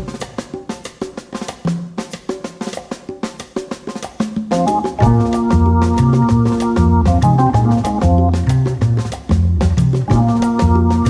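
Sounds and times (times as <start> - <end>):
busy drum beat: 0.0 - 11.0
pitched instrument notes: 4.5 - 9.1, 10.1 - 11.0.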